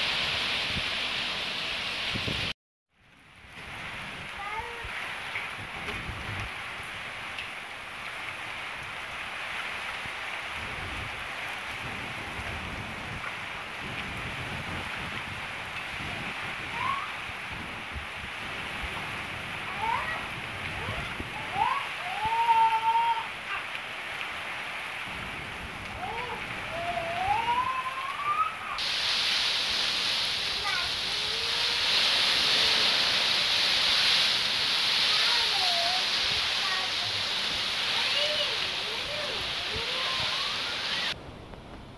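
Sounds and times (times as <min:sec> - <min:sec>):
heavy rain pouring: 0:00.0 - 0:41.9
wind gusts rumbling: 0:10.5 - 0:23.5, 0:24.4 - 0:41.9.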